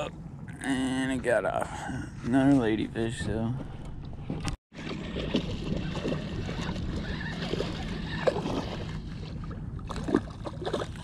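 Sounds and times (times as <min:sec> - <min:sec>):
water lapping against kayak hull: 0:03.6 - 0:11.0.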